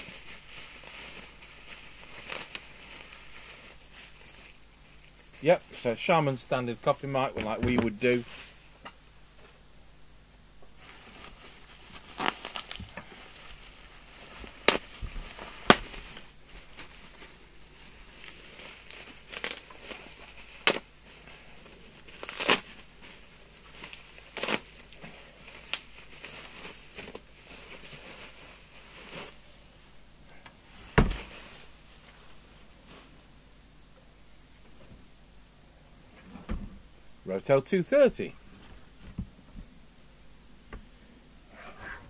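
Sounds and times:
bubble wrap crinkling: 0.0 - 6.3, 10.6 - 29.9, 30.6 - 33.3.

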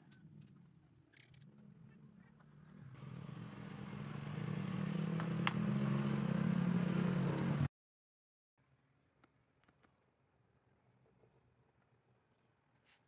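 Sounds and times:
vehicle engine humming: 1.4 - 7.7.

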